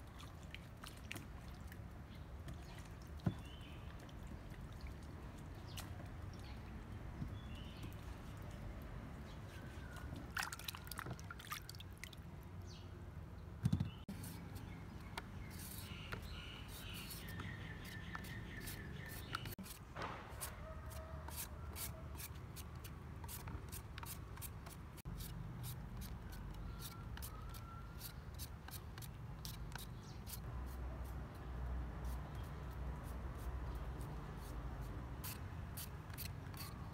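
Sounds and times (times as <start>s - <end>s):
vegetable peeler scraping: 14.1s - 19.8s, 20.4s - 30.8s, 32.2s - 36.9s.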